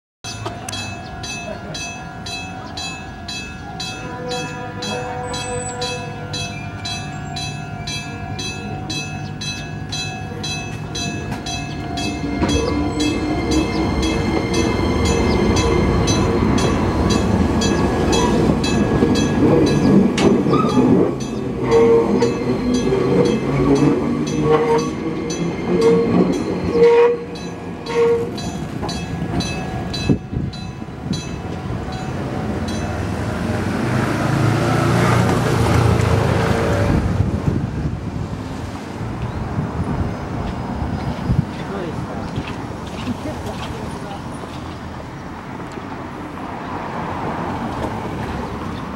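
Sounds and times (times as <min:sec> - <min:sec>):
level crossing bell ringing: 0:00.2 - 0:20.0
electric train rumbling: 0:00.3 - 0:48.9
train wheels squealing: 0:11.5 - 0:28.5.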